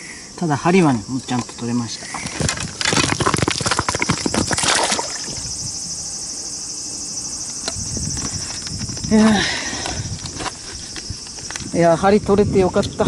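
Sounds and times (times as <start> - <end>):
high insect drone: 0.0 - 13.0
rustling and scraping clicks: 1.4 - 4.6, 9.8 - 11.7.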